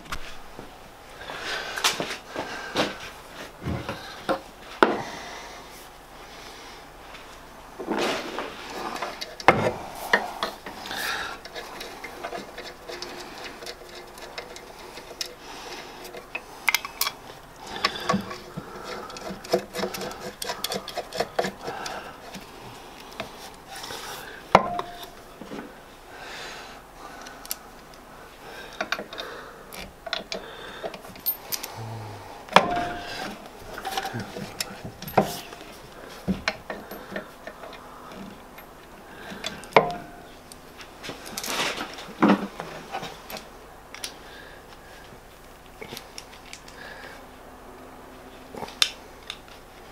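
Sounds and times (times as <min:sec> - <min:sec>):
metal clinks and knocks: 0:24.5 - 0:25.2, 0:31.0 - 0:31.8, 0:32.5 - 0:40.4.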